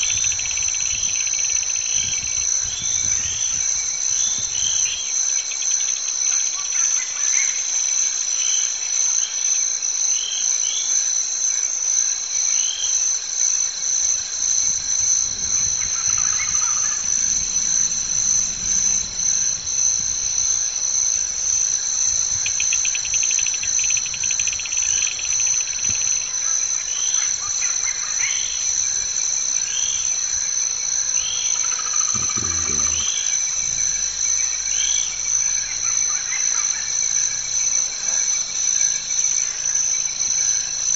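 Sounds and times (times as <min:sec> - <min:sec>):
high-pitched insect chorus: 0:00.0 - 0:40.9
low thump: 0:32.1 - 0:34.0.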